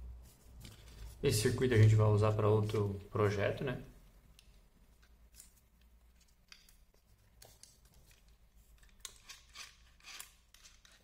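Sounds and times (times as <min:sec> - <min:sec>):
clicks and rustles of handling plastic: 0:01.8 - 0:03.2.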